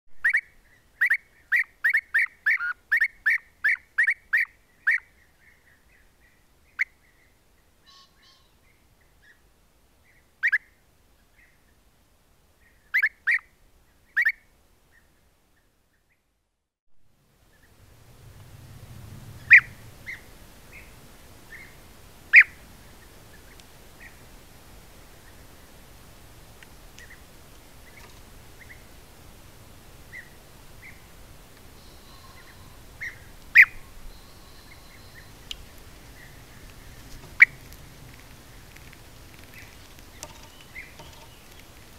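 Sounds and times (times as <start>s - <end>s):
low outdoor rumble and hiss: 0.2s - 16.0s, 17.0s - 41.9s
birds calling: 19.4s - 24.2s, 31.8s - 41.9s.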